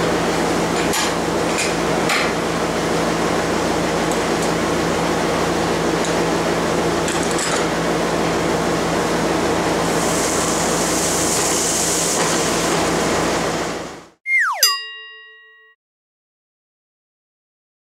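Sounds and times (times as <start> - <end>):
dust collector and vacuum running: 0.0 - 14.0.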